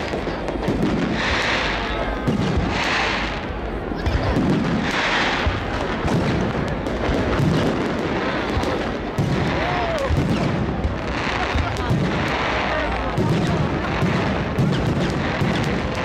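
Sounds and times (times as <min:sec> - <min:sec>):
firework hiss: 0:00.0 - 0:16.0
firework shells bursting: 0:11.6 - 0:16.0.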